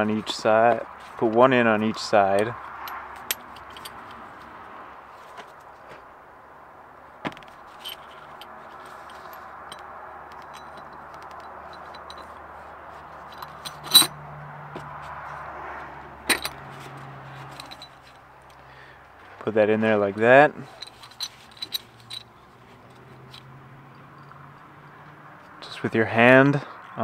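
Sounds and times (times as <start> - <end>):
steady background noise: 0.0 - 27.0
steel parts clinking: 2.1 - 4.2, 7.4 - 12.4, 13.1 - 14.2, 16.3 - 16.6, 17.3 - 18.6, 20.6 - 22.3, 22.9 - 24.4.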